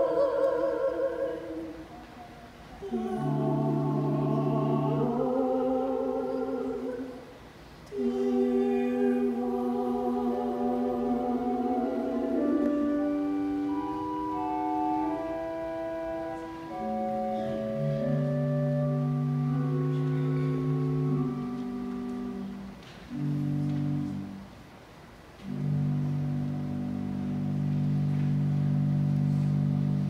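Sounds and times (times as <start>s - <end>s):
duet singing: 0.0s - 7.3s, 7.9s - 24.4s
keyboard chords: 7.9s - 24.6s, 25.4s - 30.0s.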